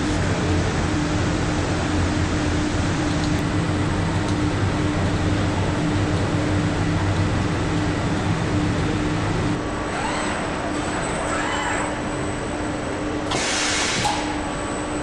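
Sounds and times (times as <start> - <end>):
factory machinery humming: 0.0 - 15.0.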